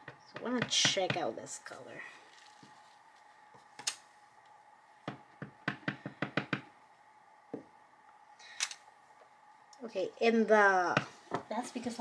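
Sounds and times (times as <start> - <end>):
acrylic block tapping on surface: 5.0 - 6.7.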